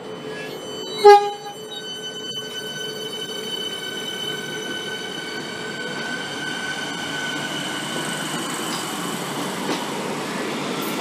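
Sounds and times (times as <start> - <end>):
train wheels rumbling on rails: 3.2 - 11.0.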